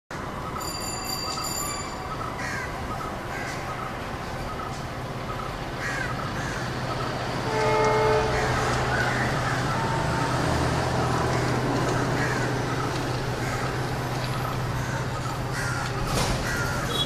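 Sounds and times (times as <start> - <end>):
diesel locomotive engine drone: 0.1 - 17.0
birds calling: 0.4 - 17.0
train horn blast: 7.4 - 10.8.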